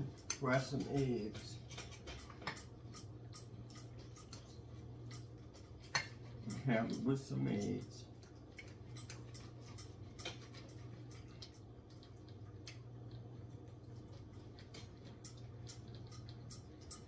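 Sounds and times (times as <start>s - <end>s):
knife and fork clicking on plate: 0.2s - 7.0s.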